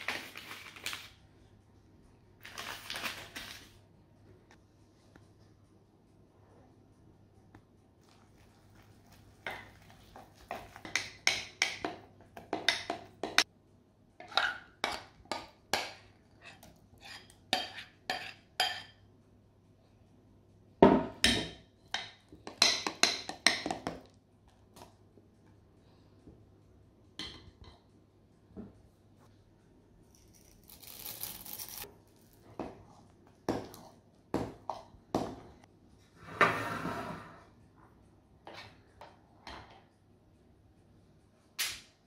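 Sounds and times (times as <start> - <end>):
spoon scraping glass bowl: 16.4 - 18.9.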